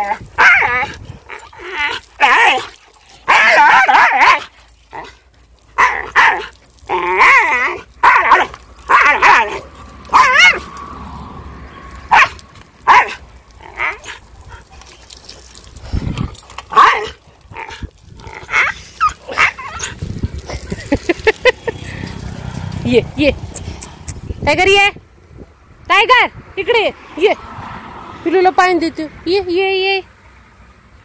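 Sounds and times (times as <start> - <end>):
dog yelping howls: 0.0 - 5.1, 5.8 - 10.7, 12.1 - 14.2, 18.4 - 20.0.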